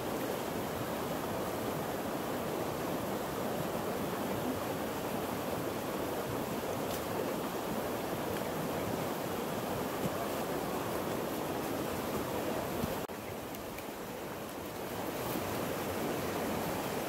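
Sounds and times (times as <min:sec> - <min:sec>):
stream water flowing: 0:00.0 - 0:17.0.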